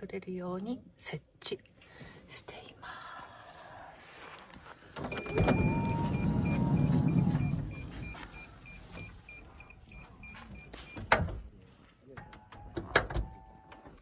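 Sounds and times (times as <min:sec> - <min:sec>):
short high beeps: 0:05.1 - 0:11.1
sliding door rumbling on track: 0:05.4 - 0:07.9.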